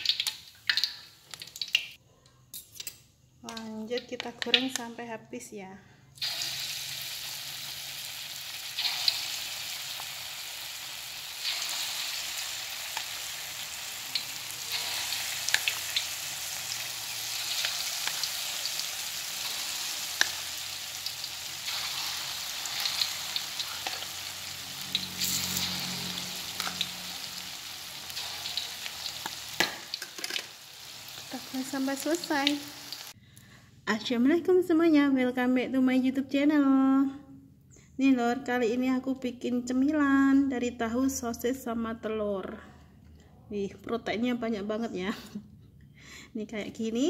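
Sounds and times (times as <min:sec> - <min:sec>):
crackles and pops of frying: 0:00.0 - 0:02.0, 0:03.5 - 0:04.9, 0:06.2 - 0:33.2
food deep-frying in oil: 0:00.0 - 0:02.0, 0:06.2 - 0:33.2.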